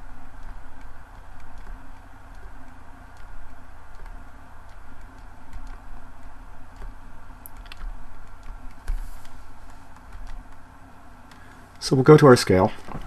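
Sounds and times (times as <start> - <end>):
stylus ticking on tablet: 0.0 - 9.0
steady low hum: 0.0 - 13.0.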